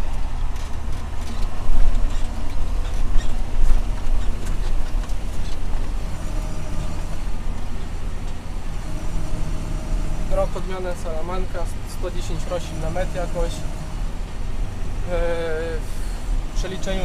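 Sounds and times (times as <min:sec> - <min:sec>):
light knocks and rattles: 0:00.0 - 0:08.5
tractor diesel engine running: 0:00.0 - 0:17.0.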